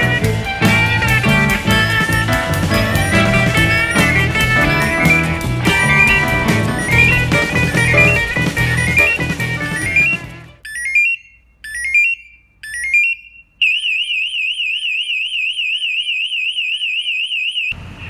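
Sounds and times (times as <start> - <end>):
guitar music: 0.0 - 10.6
rising alarm chirps: 0.0 - 17.8
warbling high alarm shriek: 9.8 - 17.8.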